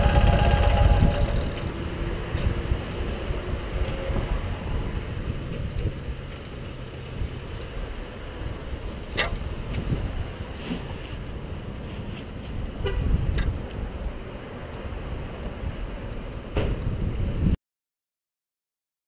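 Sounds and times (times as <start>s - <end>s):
motorcycle engine idling: 0.0s - 1.8s.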